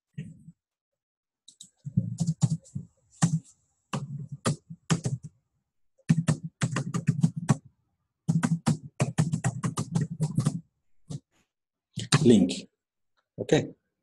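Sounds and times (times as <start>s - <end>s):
keyboard typing: 1.5s - 5.3s, 6.1s - 7.7s, 8.3s - 11.2s.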